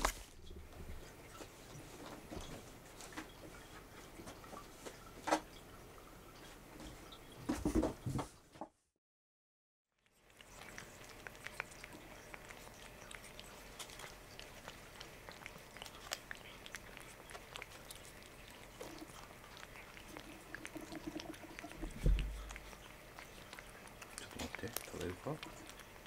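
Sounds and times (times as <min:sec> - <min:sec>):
cat licking wet clicks: 0:10.0 - 0:26.0
soft thump: 0:22.0 - 0:22.4.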